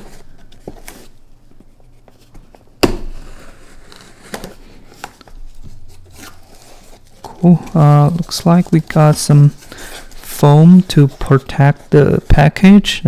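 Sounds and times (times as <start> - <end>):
tape and cardboard crinkling: 3.4 - 12.5.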